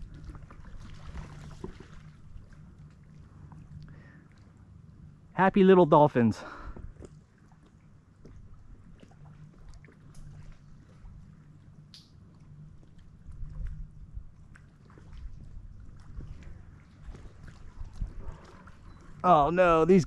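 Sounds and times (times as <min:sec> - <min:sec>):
water lapping against hull: 0:00.0 - 0:20.0
low wind rumble: 0:15.1 - 0:20.0.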